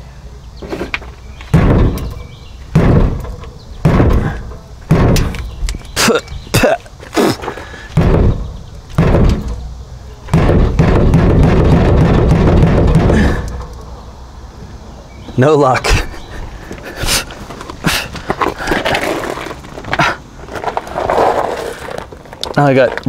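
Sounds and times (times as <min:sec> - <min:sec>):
hand thudding on fuel tank: 0:01.5 - 0:05.6, 0:08.0 - 0:13.8
loud steady noise: 0:01.6 - 0:14.3.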